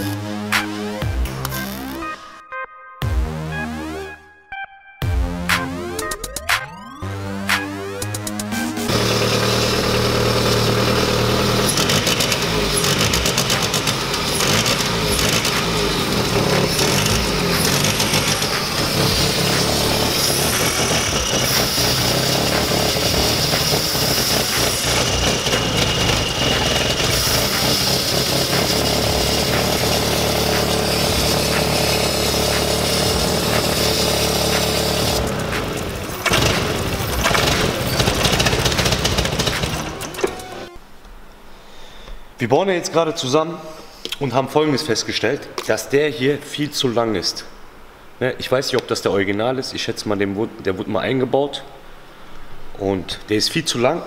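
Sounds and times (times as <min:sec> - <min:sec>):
car engine running rattly: 0:08.9 - 0:40.7.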